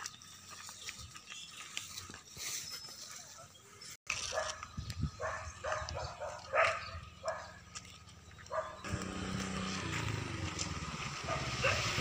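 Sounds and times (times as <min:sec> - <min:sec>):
dog barking: 0:04.3 - 0:04.6, 0:05.2 - 0:07.6, 0:08.5 - 0:08.8, 0:11.2 - 0:12.0
vehicle engine running: 0:07.6 - 0:12.0.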